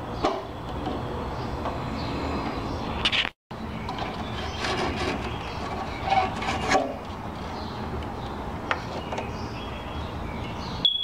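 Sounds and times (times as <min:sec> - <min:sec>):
metal cover rubbing and scraping: 0:03.9 - 0:07.6.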